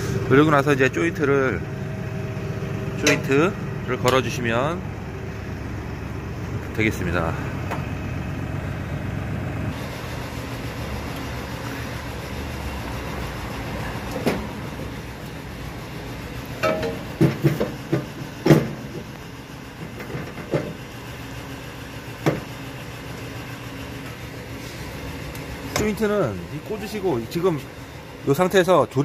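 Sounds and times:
metal clinks and knocks: 16.6 - 17.8.

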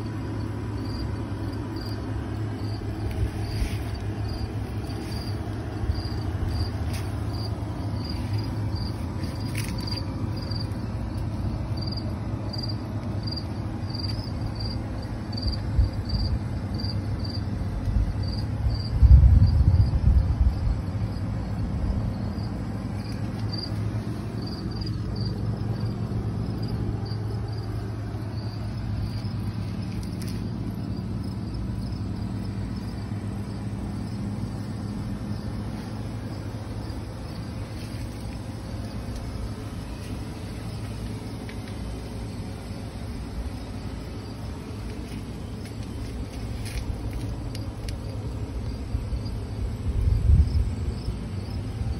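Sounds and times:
cricket chirping: 0.0 - 51.9
low rumble: 0.0 - 51.9.

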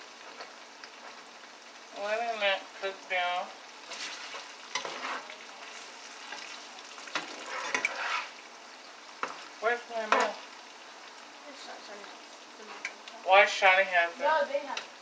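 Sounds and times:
food sizzling in a pan: 0.0 - 15.0
utensil scraping a pan: 3.8 - 8.5.

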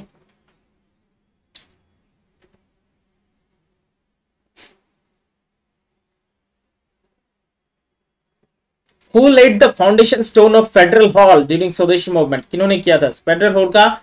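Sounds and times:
faint steady hum: 0.0 - 14.0
sharp short noise: 4.5 - 4.9.

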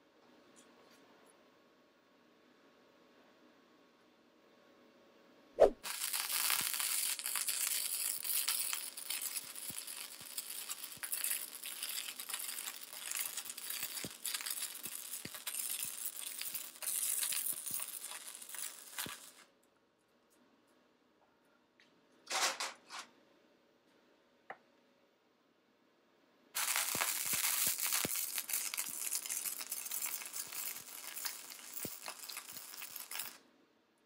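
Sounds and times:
welding arc pop: 5.8 - 19.4, 26.6 - 33.3
welding crackle: 5.8 - 19.5, 26.6 - 33.4.

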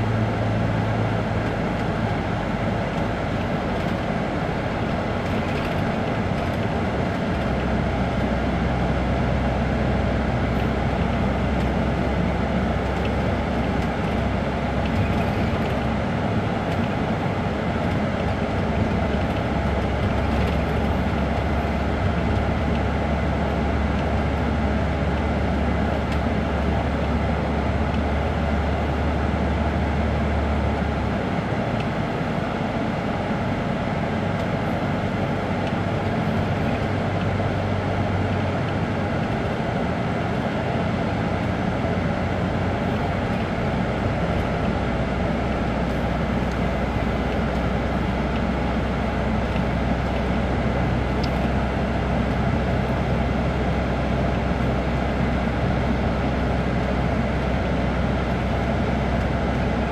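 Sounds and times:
diesel engine idling: 0.0 - 59.9.

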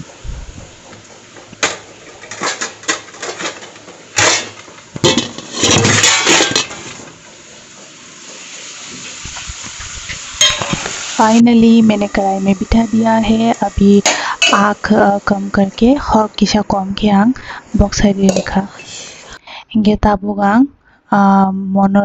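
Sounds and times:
steady hiss: 0.0 - 16.7, 17.3 - 19.4
metal pans clinking and clattering: 1.6 - 7.1, 10.3 - 10.9.

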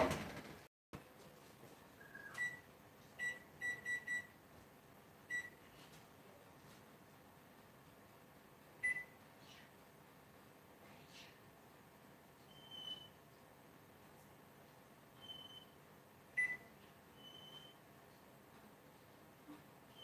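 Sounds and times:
kitchen timer keypad beeps: 3.2 - 4.4, 5.3 - 5.6, 8.8 - 9.2, 16.4 - 16.7.

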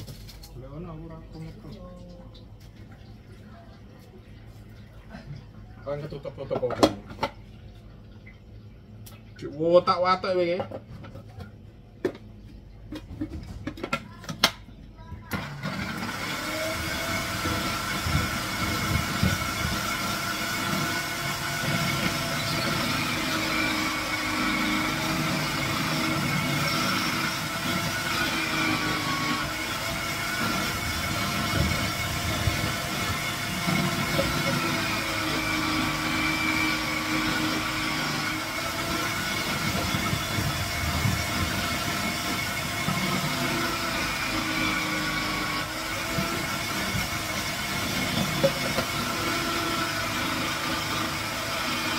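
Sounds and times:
food processor motor whining: 15.3 - 51.9.

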